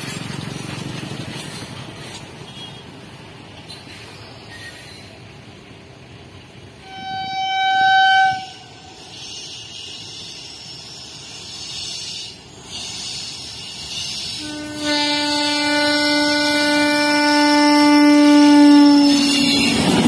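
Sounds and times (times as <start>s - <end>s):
low locomotive horn blast: 6.8s - 9.4s, 14.2s - 20.0s
high-pitched locomotive horn: 6.8s - 10.3s, 13.6s - 20.0s
hiss: 8.7s - 15.7s.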